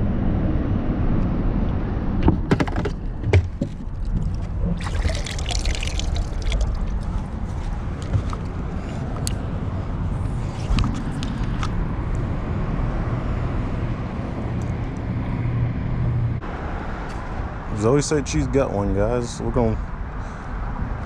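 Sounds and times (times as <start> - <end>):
steady low rumble: 0.0 - 16.5
water splashing in a bucket: 3.9 - 7.5.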